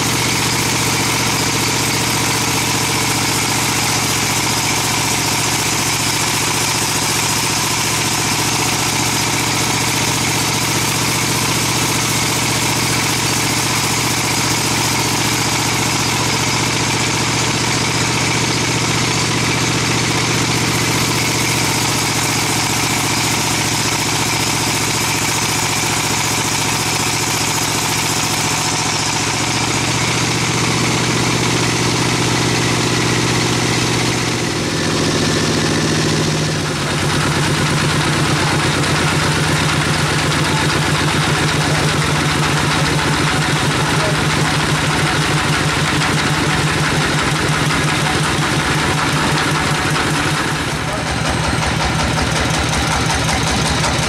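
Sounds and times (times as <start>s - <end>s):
band saw cutting a log: 0.0s - 54.0s.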